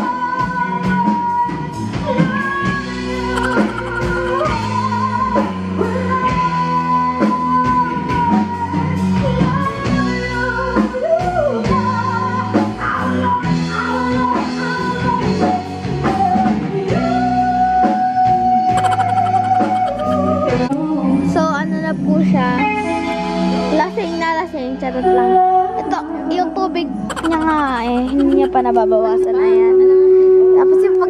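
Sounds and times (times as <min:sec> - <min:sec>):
live band accompaniment: 0:00.0 - 0:21.4, 0:22.0 - 0:24.2
singer holding long notes: 0:02.6 - 0:05.8, 0:17.0 - 0:21.4.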